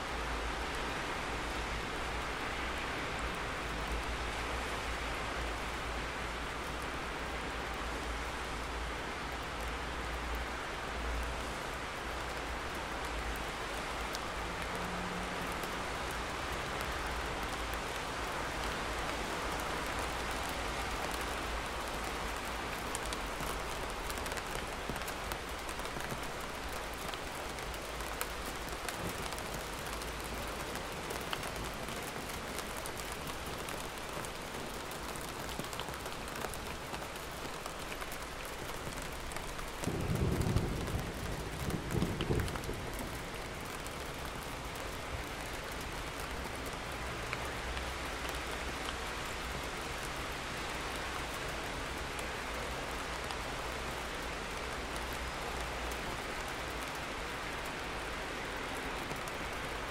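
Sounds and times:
steady rainfall: 0.0s - 59.9s.

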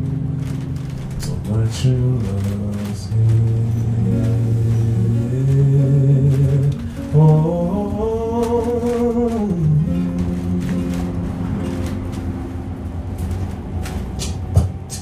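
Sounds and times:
acoustic guitar: 0.0s - 15.0s
man singing long held notes: 1.3s - 11.4s.

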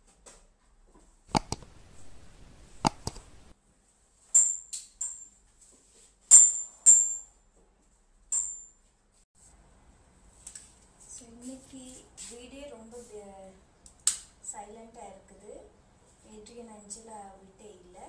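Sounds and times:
mouse clicks: 1.3s - 3.5s.

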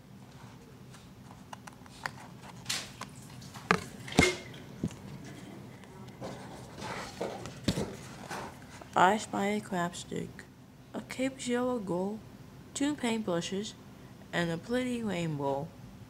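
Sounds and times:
page turning rustle: 0.4s - 4.0s, 6.2s - 9.0s.

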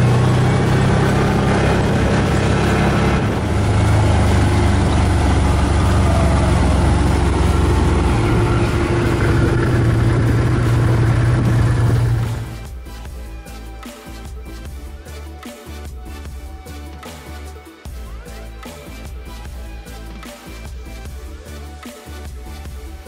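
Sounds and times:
tires on gravel: 0.0s - 12.6s
atv engine running: 0.0s - 12.8s.

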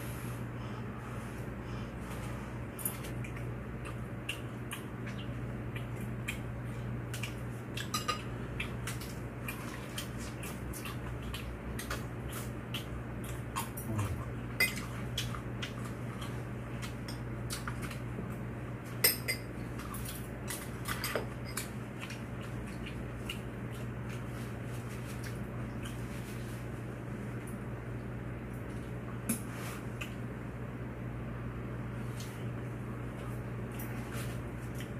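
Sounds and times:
low steady hum: 0.0s - 34.9s
utensils clinking against dishes: 7.8s - 8.3s, 14.6s - 14.9s, 19.0s - 20.2s, 20.8s - 21.7s.

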